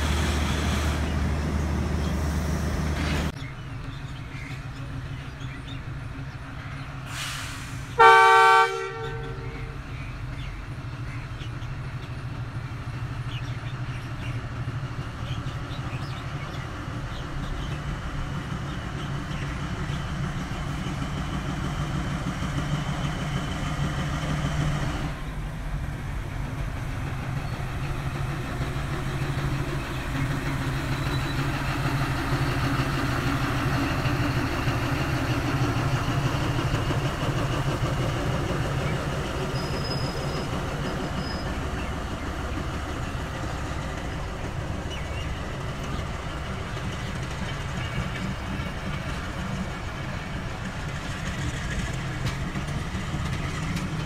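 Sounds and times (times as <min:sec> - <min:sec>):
coaches rolling on rails: 0:00.0 - 0:54.0
locomotive engine humming: 0:00.0 - 0:54.0.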